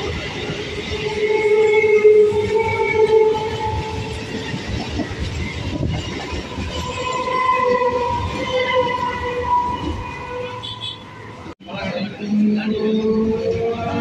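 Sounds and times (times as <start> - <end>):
train wheels rumbling over rails: 0.0 - 10.2.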